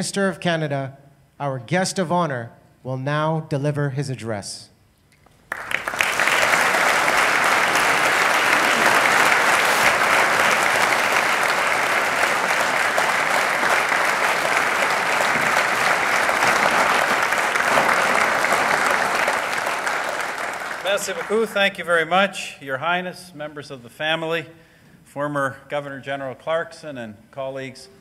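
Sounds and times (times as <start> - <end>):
audience applauding: 5.5 - 21.9.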